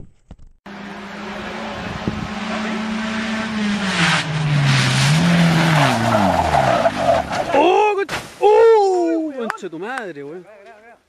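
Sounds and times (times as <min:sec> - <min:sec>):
rally car engine at speed: 0:00.7 - 0:07.6
road noise: 0:00.7 - 0:08.5.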